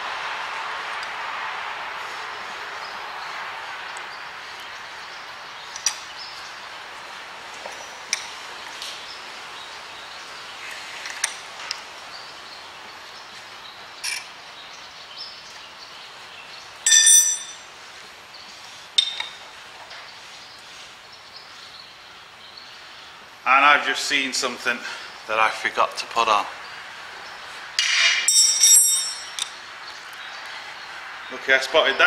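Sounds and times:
ringing metallic clink: 16.9 - 17.7, 27.8 - 29.6.

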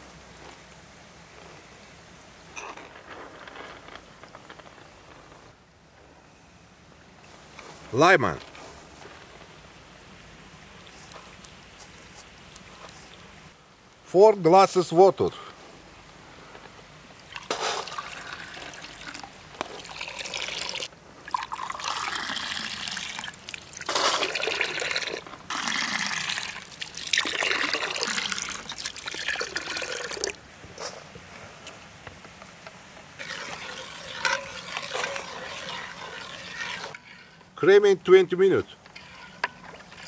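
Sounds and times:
water pouring into metal pot: 17.3 - 30.4, 33.2 - 37.4, 38.9 - 40.0.

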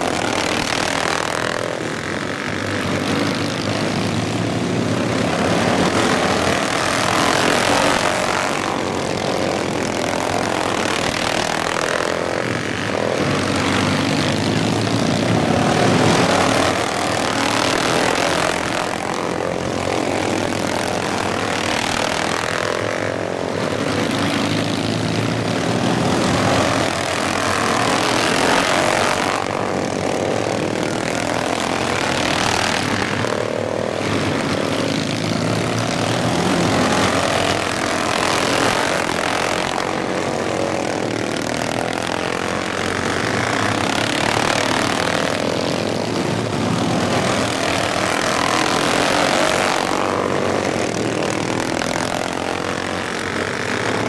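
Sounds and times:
racing lawn mower engines: 0.0 - 54.0.

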